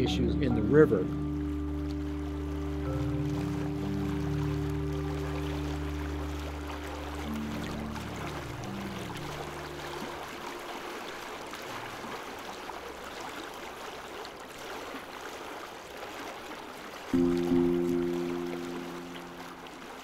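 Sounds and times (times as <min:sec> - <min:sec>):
loud sustained music chord: 0:00.0 - 0:10.9, 0:17.2 - 0:20.0
sustained low music notes: 0:00.0 - 0:10.9, 0:17.2 - 0:20.0
flowing river water: 0:00.0 - 0:20.0.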